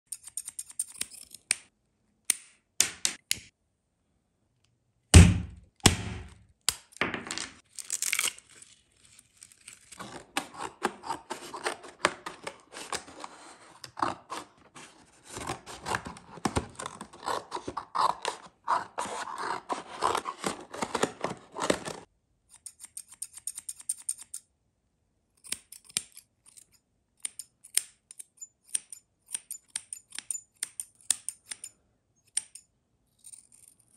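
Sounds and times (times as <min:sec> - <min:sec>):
loud thunk: 0:05.2 - 0:06.3
cardboard box rustling: 0:10.0 - 0:22.1.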